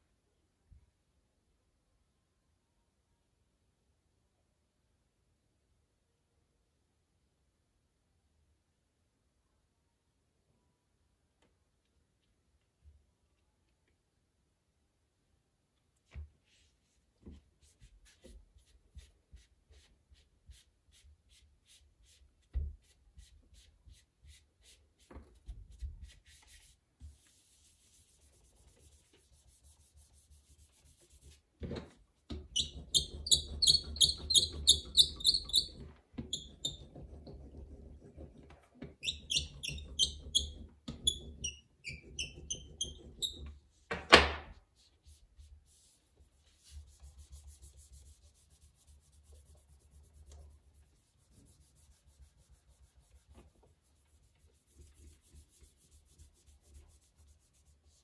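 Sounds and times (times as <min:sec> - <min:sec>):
hand tool scraping clay: 0:32.5 - 0:43.6.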